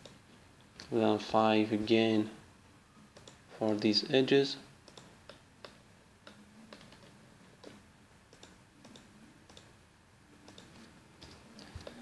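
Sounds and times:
computer mouse clicks: 3.1s - 3.8s, 4.8s - 9.7s, 10.4s - 12.0s.

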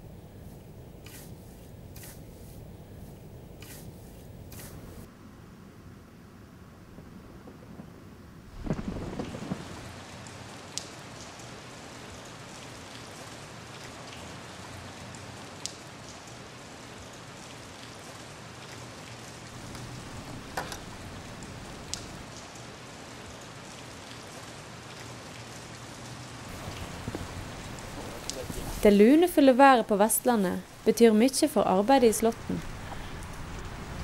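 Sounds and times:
rain falling on grass: 6.8s - 34.0s.

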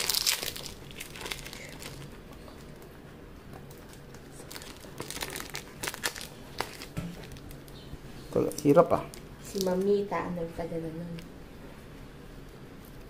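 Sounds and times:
tape and paper crinkling: 0.0s - 2.9s, 3.6s - 7.8s.

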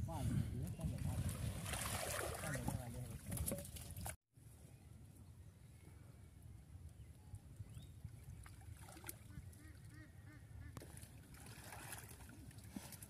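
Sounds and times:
water sloshing: 1.0s - 4.2s, 10.8s - 13.0s.

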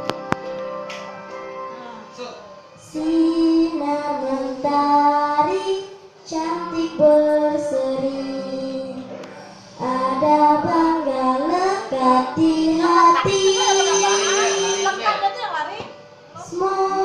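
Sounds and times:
girl singing into microphone: 2.7s - 14.8s, 16.3s - 17.0s.

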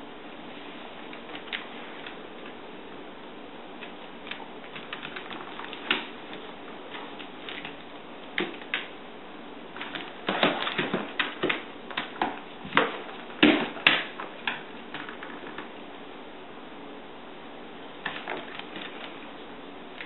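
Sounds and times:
dog claws clicking on tile floor: 3.8s - 9.0s, 9.8s - 15.7s, 18.0s - 19.2s.

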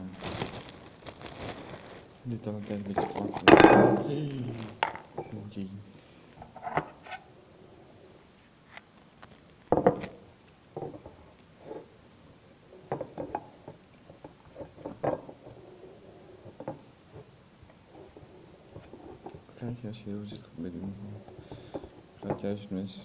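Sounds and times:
glass jar knocks and clinks: 3.5s - 4.1s.

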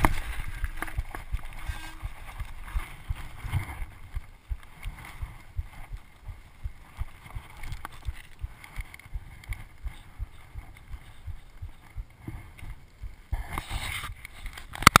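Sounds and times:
hand rubbing camera housing: 0.0s - 5.2s
wind buffeting microphone: 0.0s - 14.2s.

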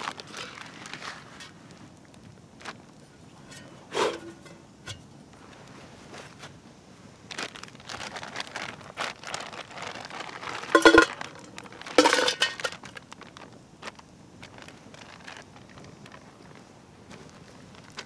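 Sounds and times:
plastic bag crinkling: 0.0s - 1.6s, 7.3s - 18.0s.

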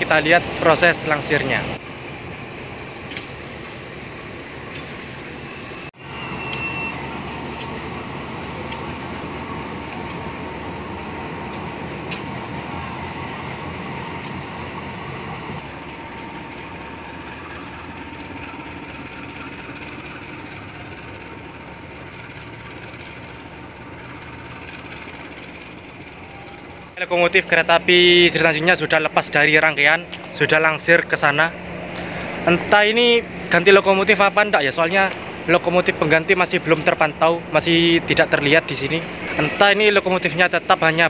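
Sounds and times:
diesel locomotive engine: 0.0s - 41.0s.

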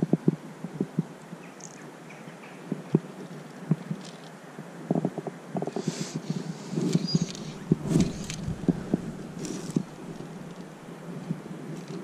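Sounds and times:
wind on microphone: 0.0s - 1.5s, 2.6s - 12.0s
river water lapping around legs: 7.0s - 10.9s.

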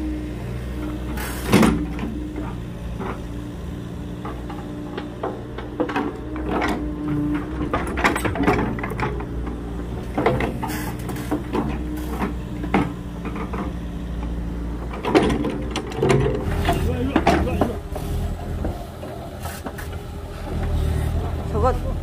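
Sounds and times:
diesel engine idling: 0.0s - 22.0s
irregular clicks and knocks: 4.2s - 20.8s.

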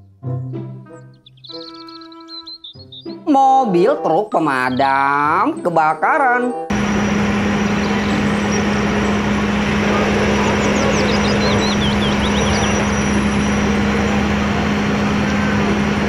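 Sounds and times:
high chirps: 0.4s - 3.3s, 6.7s - 16.0s
fire truck engine drone: 6.7s - 16.0s
water spraying rush: 6.7s - 16.0s.

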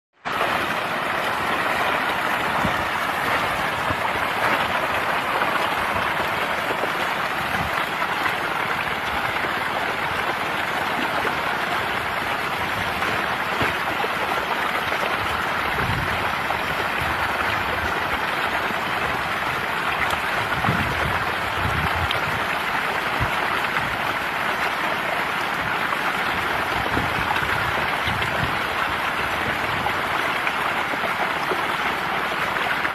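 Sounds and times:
fish splashing water: 0.2s - 18.2s.

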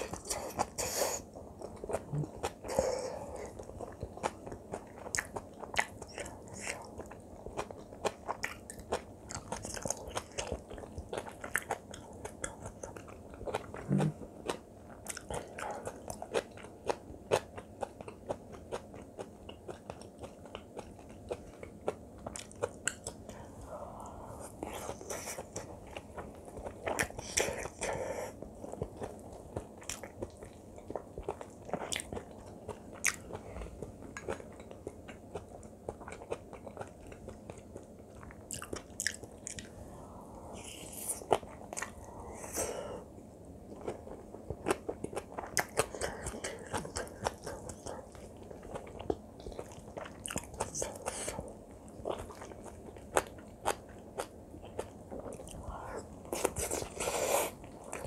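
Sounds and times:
close-miked chewing with mouth clicks: 0.0s - 39.8s, 40.5s - 42.8s, 43.6s - 58.0s.

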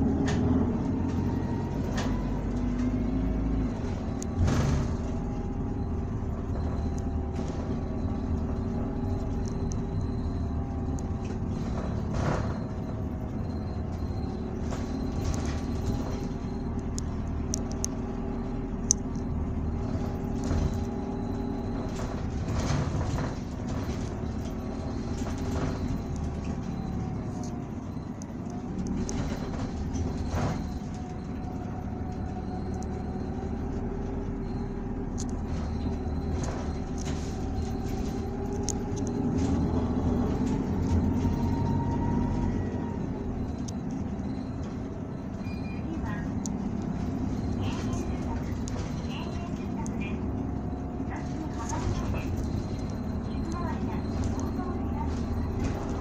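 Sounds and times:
bus body rattles and knocks: 0.0s - 56.0s
bus diesel engine drone: 0.0s - 56.0s.

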